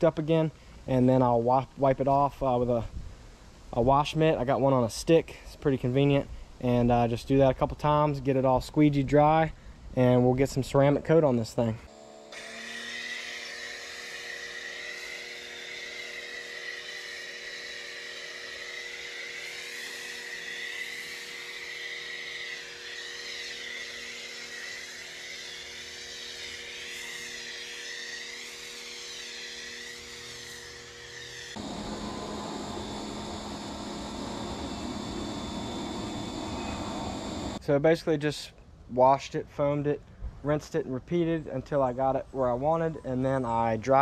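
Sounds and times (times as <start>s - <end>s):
electric motor whining: 31.6s - 37.6s.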